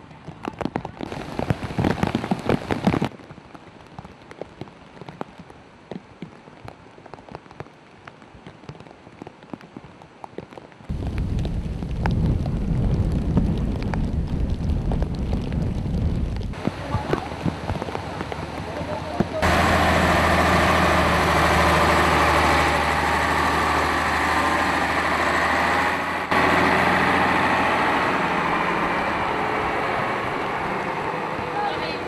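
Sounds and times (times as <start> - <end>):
rushing floodwater: 0.0 - 12.5, 16.3 - 32.0
raindrop hits close by: 0.0 - 25.6
heavy rain: 0.0 - 32.0.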